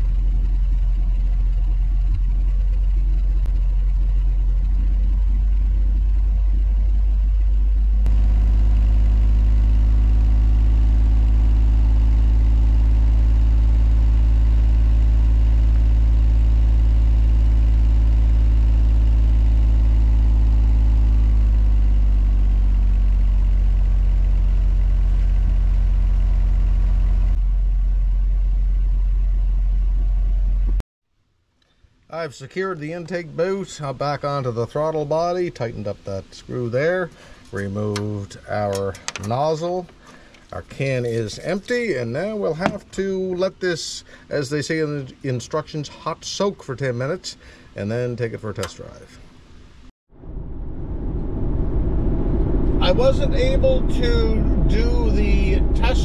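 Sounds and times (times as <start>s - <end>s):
engine exhaust fast idle: 0.0s - 30.8s, 50.2s - 56.0s.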